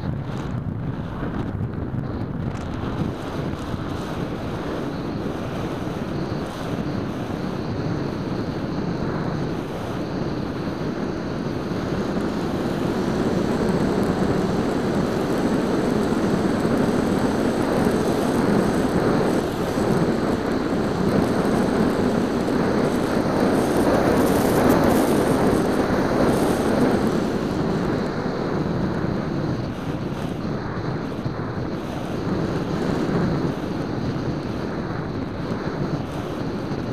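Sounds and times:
electric propeller whir: 0:00.0 - 0:36.9
rushing wind: 0:00.0 - 0:36.9.

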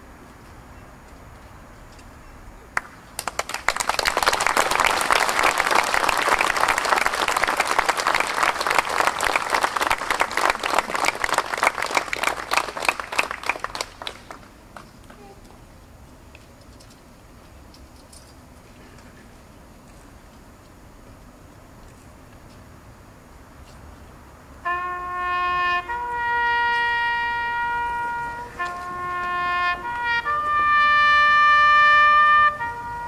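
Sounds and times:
crowd applauding: 0:02.8 - 0:14.9.

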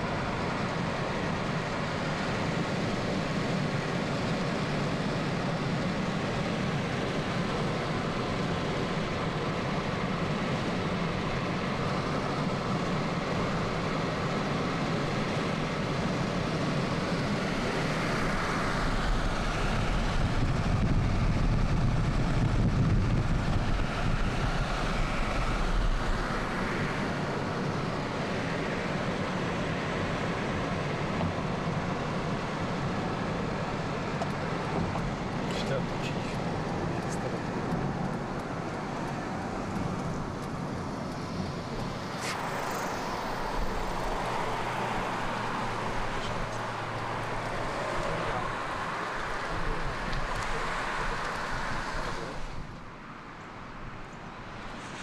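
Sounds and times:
car interior road and engine noise: 0:00.0 - 0:55.0.

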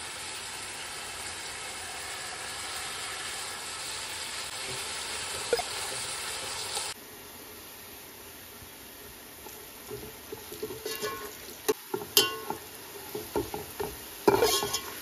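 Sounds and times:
onions sizzling in hot oil: 0:00.0 - 0:15.0.

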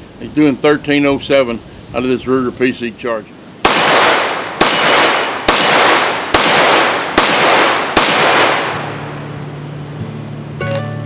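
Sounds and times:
pistol shots with long echo: 0:03.6 - 0:09.4.

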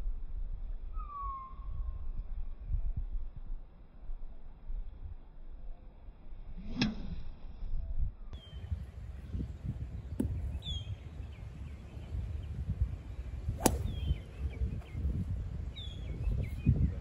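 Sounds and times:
wind rumble on microphone: 0:00.0 - 0:17.0
bird chirps: 0:08.4 - 0:15.1, 0:15.7 - 0:16.9
golf club striking ball: 0:13.5 - 0:14.2.

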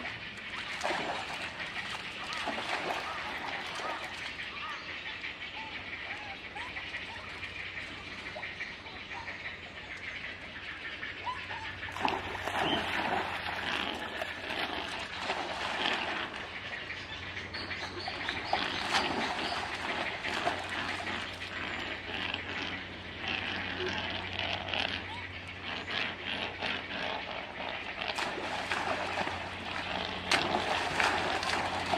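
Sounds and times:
splashing in water: 0:00.5 - 0:04.5, 0:11.9 - 0:16.6, 0:18.0 - 0:22.3, 0:28.1 - 0:31.9
monkey jumping into pond: 0:00.7 - 0:04.3, 0:11.9 - 0:16.5, 0:18.1 - 0:21.4, 0:28.1 - 0:31.9.

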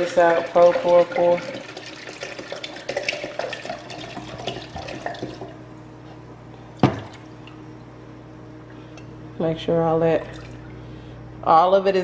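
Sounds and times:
wine gurgling as it pours: 0:00.2 - 0:05.6.

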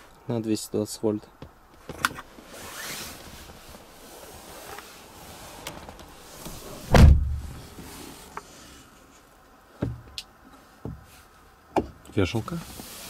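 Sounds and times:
loud thump: 0:06.9 - 0:07.6.

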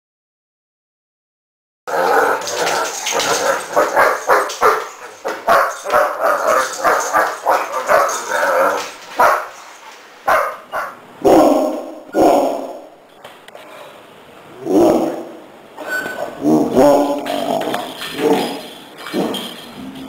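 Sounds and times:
dogs barking: 0:01.9 - 0:12.8.

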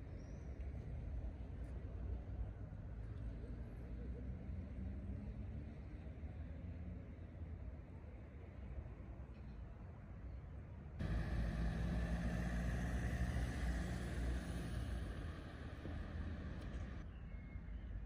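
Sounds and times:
faint street rumble: 0:00.0 - 0:18.0
car driving past: 0:11.0 - 0:17.0.

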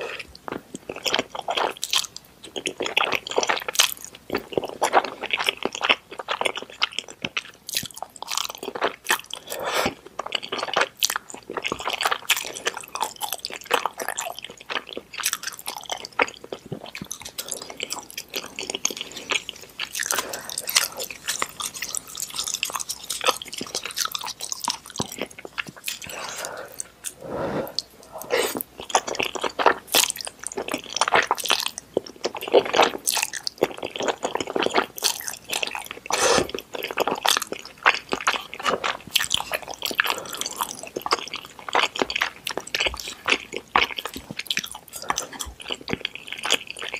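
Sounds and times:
wet chewing and slurping: 0:00.0 - 0:46.9.

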